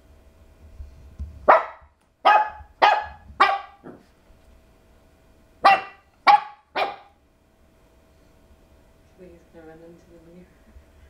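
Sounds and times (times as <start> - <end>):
puppy barking: 1.5 - 4.1, 5.6 - 7.2.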